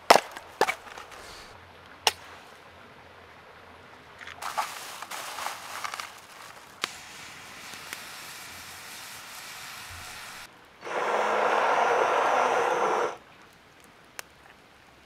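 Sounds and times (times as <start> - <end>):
loud dense steady hiss: 0.0 - 15.0
crackly rustling: 4.1 - 8.8
mushrooms sizzling in a pan: 6.5 - 13.1.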